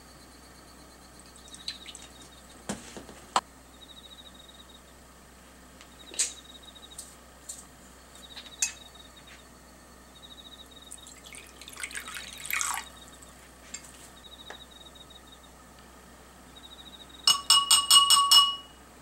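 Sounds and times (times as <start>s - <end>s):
cricket trilling: 0.0s - 2.7s, 3.4s - 5.2s, 5.8s - 15.7s, 16.3s - 17.7s
water poured into glass bowl: 10.9s - 12.9s.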